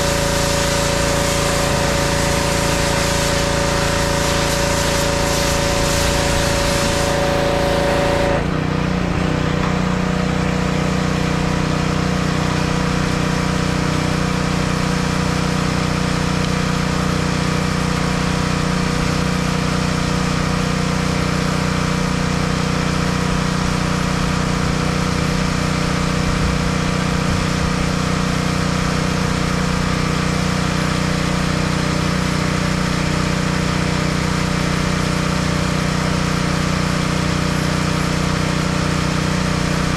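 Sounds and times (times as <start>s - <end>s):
engine idling: 0.0s - 39.9s
pressure washer spray hissing: 0.0s - 39.9s.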